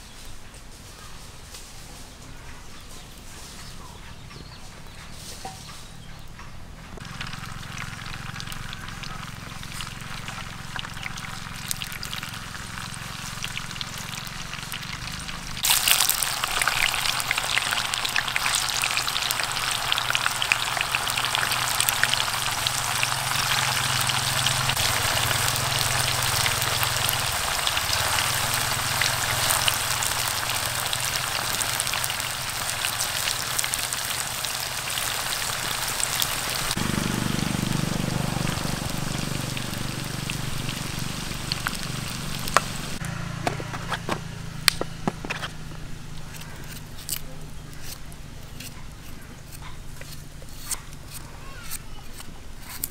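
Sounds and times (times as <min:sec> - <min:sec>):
tofu deep-frying in oil: 0:07.0 - 0:43.1.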